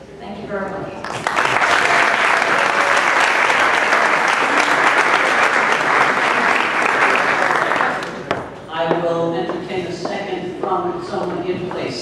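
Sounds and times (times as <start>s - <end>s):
audience applauding: 1.0s - 8.3s.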